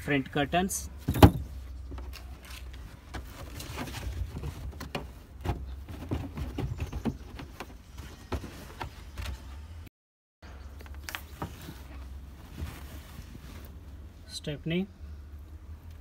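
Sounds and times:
mesh sunshades rustling: 11.0 - 14.0.

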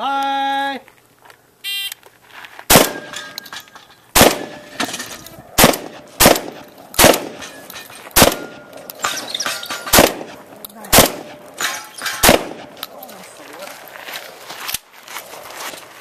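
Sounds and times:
electronic timer beep: 1.6 - 2.0
shotgun blasts: 2.7 - 3.2, 4.1 - 4.9, 5.6 - 7.6, 8.2 - 8.7, 9.8 - 12.8
steel target ringing: 2.8 - 10.4, 11.2 - 12.6.

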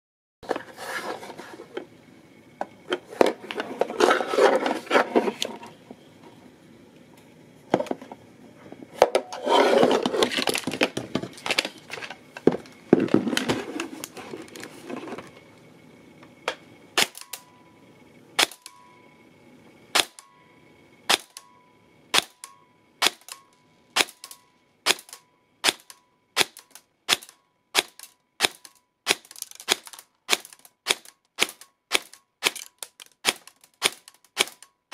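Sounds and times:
clattering handling noise: 7.8 - 15.4.

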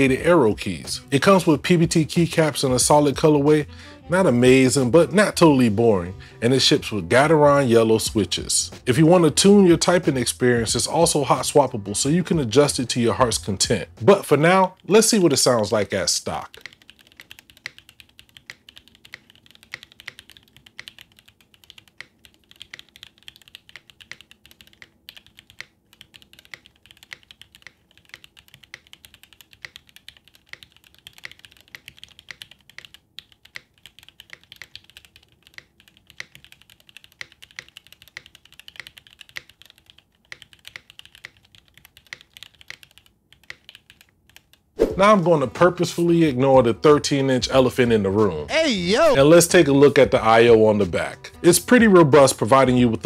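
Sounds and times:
mechanical keyboard typing: 16.3 - 44.7.

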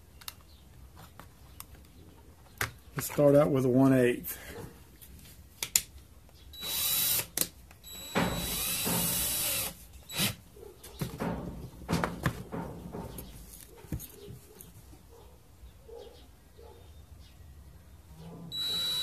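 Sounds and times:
cordless drill motor: 6.6 - 10.4, 18.5 - 19.0
clicks and handling knocks: 10.8 - 14.8.

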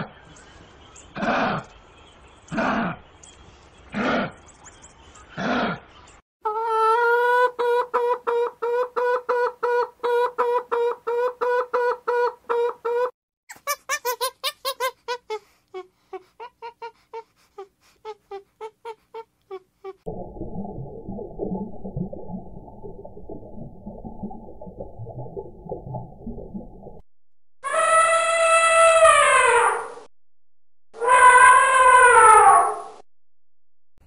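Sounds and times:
chickens clucking: 6.5 - 15.0.

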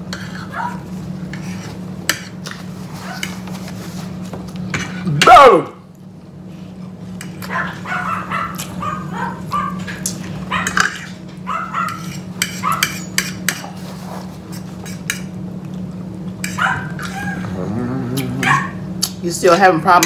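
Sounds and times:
steady low hum: 0.0 - 20.0
dog whining: 7.4 - 10.8, 16.5 - 18.9
forks clinking on plates: 9.8 - 11.2, 11.8 - 13.8.

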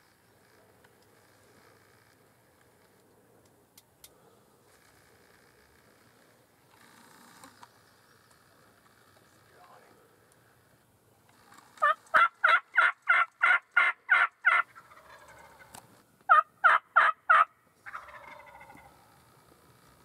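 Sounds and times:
turkey yelps: 11.8 - 18.9
rougher turkey call: 11.8 - 19.1.

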